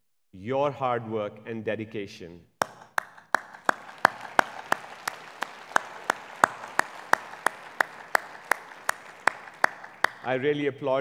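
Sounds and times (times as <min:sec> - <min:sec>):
hands clapping close to microphone: 0:02.6 - 0:10.4
audience applause: 0:03.0 - 0:10.4.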